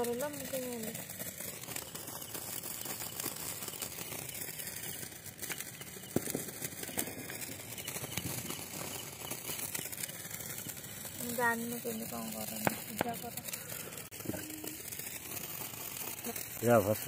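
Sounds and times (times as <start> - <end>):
sharp crack: 0.0 - 17.0
sparklers fizzing and crackling: 0.0 - 17.0.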